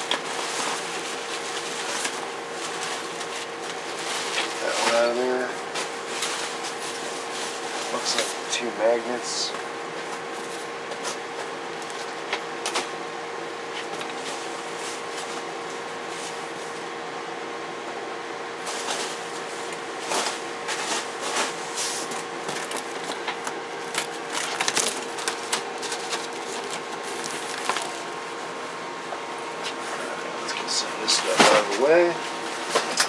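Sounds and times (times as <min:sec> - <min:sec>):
steady hum: 0:00.0 - 0:33.0
packing material rustling: 0:18.6 - 0:28.3.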